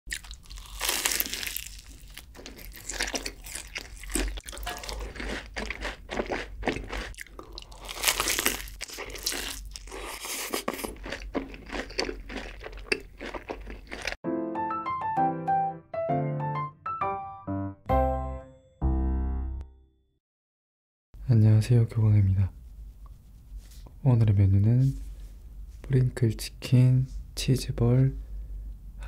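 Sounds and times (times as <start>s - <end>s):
crunching and chewing fried chicken: 0.1s - 14.2s
piano music: 4.6s - 5.1s, 14.2s - 20.2s.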